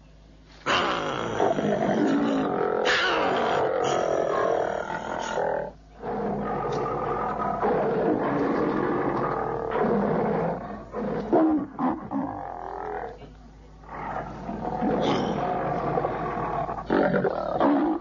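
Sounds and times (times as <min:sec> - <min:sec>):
deep snarling growls and roars: 0:00.7 - 0:13.2, 0:13.8 - 0:18.0.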